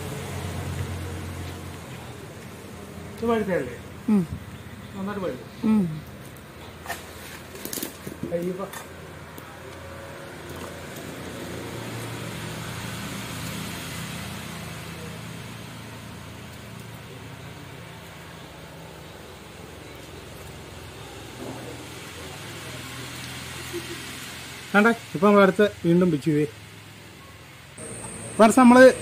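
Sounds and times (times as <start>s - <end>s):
vehicle passing: 0.0s - 4.0s, 9.2s - 16.9s.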